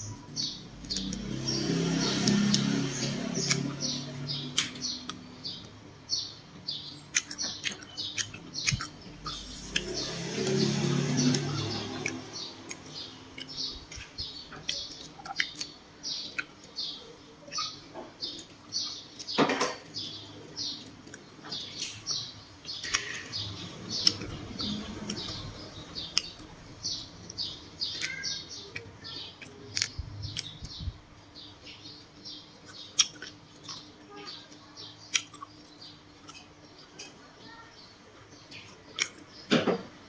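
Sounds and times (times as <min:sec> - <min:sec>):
small bones clicking: 0:00.8 - 0:01.4, 0:02.0 - 0:05.2, 0:07.0 - 0:16.8, 0:22.6 - 0:30.8, 0:32.6 - 0:33.9, 0:35.1 - 0:37.2, 0:38.6 - 0:39.3
close-up chewing: 0:07.1 - 0:16.8.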